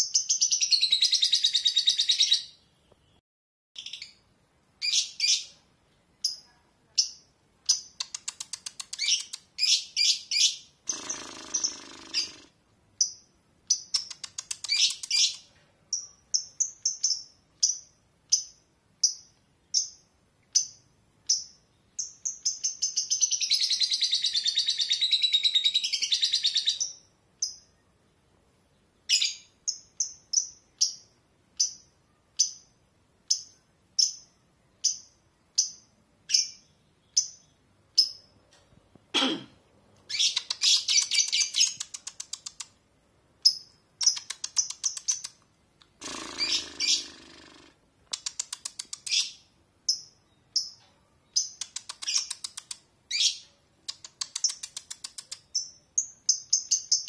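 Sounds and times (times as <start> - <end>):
birds chirping high: 0.0 - 3.2, 3.8 - 38.6, 40.0 - 42.8, 43.4 - 57.0
bird rattling chatter: 10.9 - 12.5.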